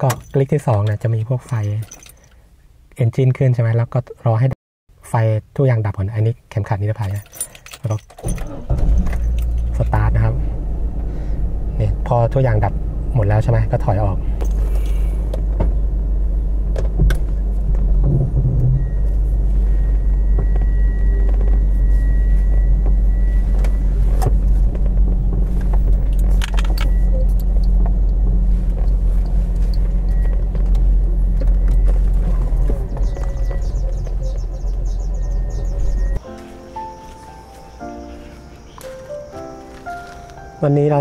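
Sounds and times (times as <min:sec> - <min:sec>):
car engine rumbling: 0:07.0 - 0:36.2.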